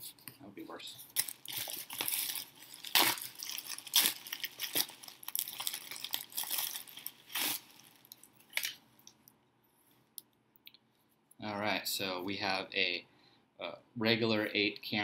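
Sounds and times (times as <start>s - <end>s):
bubble wrap rustling and crinkling: 0.0s - 9.2s.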